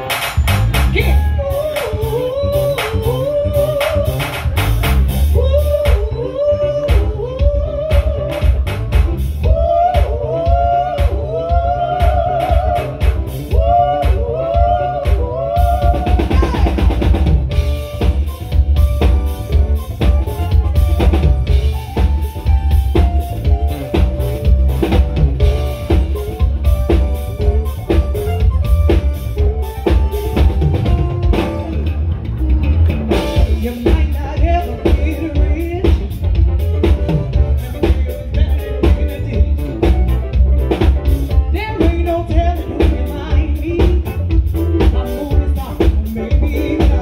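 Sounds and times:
live band playing: 0.0s - 47.0s
woman singing: 0.9s - 4.5s, 5.3s - 8.7s, 9.4s - 17.1s, 33.4s - 36.4s, 37.5s - 40.2s, 41.5s - 47.0s.

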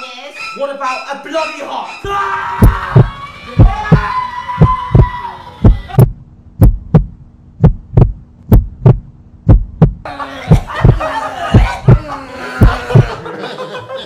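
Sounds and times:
heartbeat double thump: 2.6s - 12.0s, 12.6s - 13.2s
voices: 10.1s - 14.0s.

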